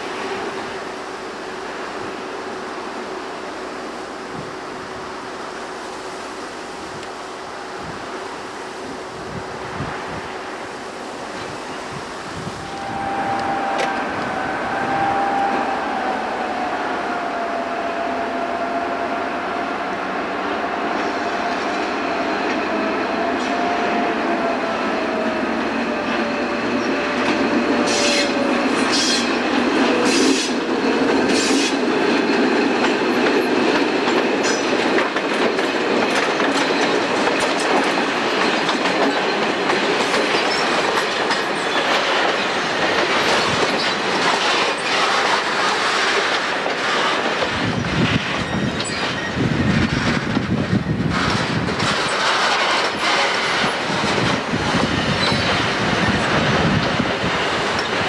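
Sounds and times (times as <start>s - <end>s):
diesel locomotive engine: 0.0s - 58.0s
train wheels clattering: 24.4s - 58.0s.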